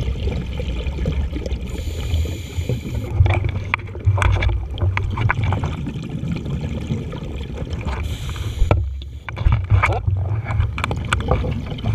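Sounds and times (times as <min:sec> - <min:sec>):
bubbles gurgling and popping: 0:00.0 - 0:11.9
low rumble of water: 0:00.0 - 0:11.9
regulator inhalation hiss: 0:01.8 - 0:03.1, 0:08.0 - 0:09.3.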